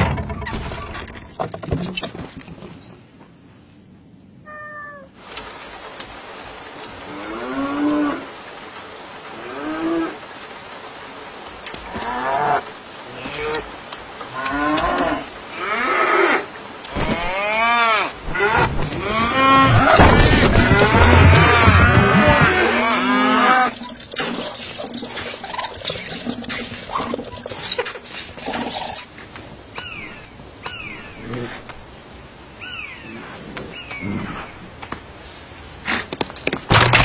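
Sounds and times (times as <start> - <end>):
rain hissing: 5.1 - 36.2
cows mooing: 14.3 - 25.1.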